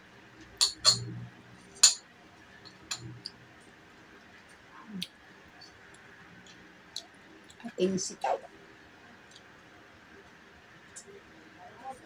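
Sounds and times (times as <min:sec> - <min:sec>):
fork clinking on ceramic plate: 0:00.6 - 0:01.1.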